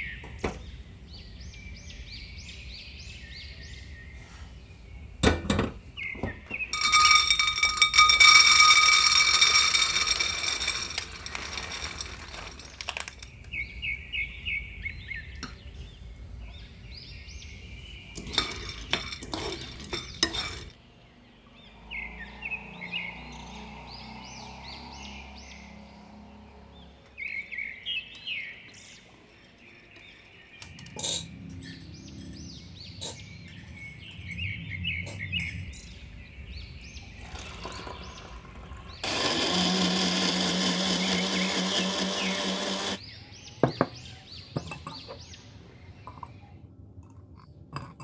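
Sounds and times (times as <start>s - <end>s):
nuts rattling into pan: 6.7s - 13.4s, 18.2s - 20.7s
birds chirping: 9.8s - 46.7s.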